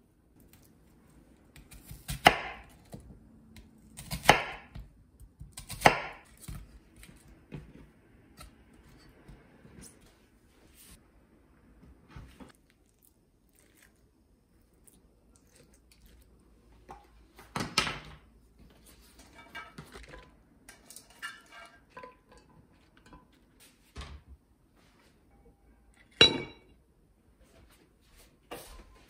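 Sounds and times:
dishes and utensils clinking: 19.1s - 23.5s, 26.0s - 26.7s.

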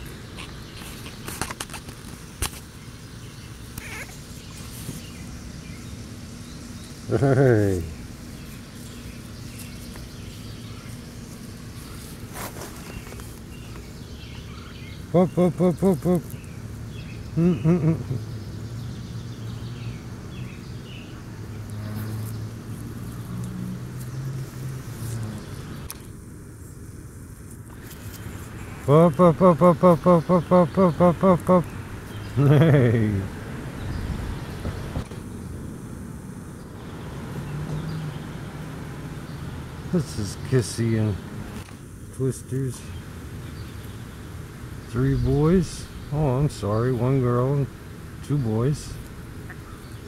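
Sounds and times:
distant motor hum: 0.0s - 50.0s
puppy whimpering: 3.8s - 4.2s.

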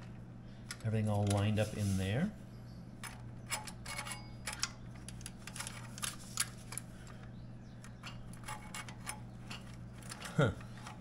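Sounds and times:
steady low hum: 0.0s - 11.0s
metal clicks and scrapes: 3.0s - 11.0s.

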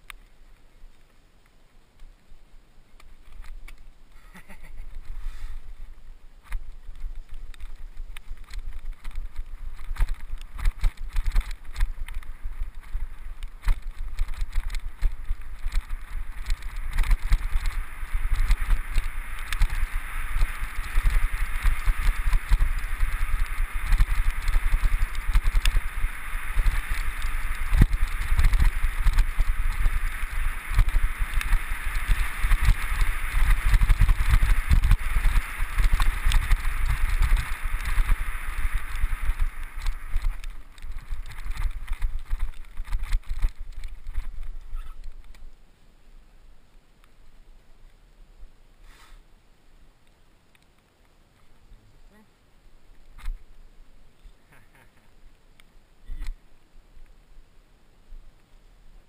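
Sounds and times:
wind rumble on microphone: 4.8s - 45.6s
bike rattling over bumps: 6.4s - 45.5s.

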